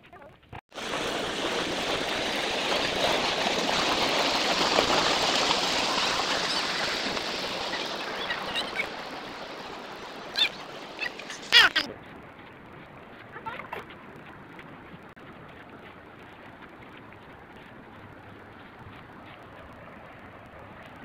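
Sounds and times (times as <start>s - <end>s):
water rushing along a channel: 0.7s - 21.0s
brief high-pitched calls: 10.3s - 11.9s.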